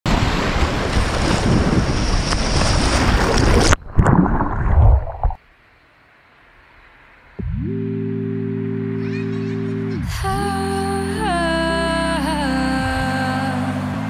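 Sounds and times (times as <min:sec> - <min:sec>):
rushing surf: 0:00.1 - 0:05.4
wind noise on microphone: 0:00.1 - 0:05.4
muffled underwater sloshing: 0:02.0 - 0:05.4.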